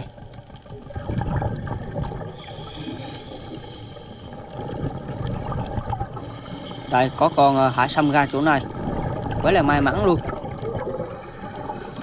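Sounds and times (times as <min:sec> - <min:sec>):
bubbles gurgling underwater: 0:00.0 - 0:03.0, 0:04.4 - 0:06.4, 0:08.0 - 0:11.2
low underwater rumble: 0:00.0 - 0:06.5, 0:08.6 - 0:11.9
diver breathing through regulator: 0:02.3 - 0:04.9, 0:06.2 - 0:08.6, 0:10.9 - 0:12.0.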